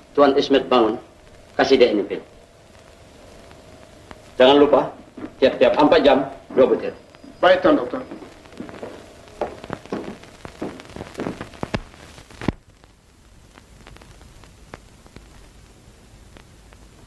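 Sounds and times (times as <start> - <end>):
film soundtrack hiss and crackle: 0.0 - 17.0
footsteps on hard floor: 5.2 - 11.9.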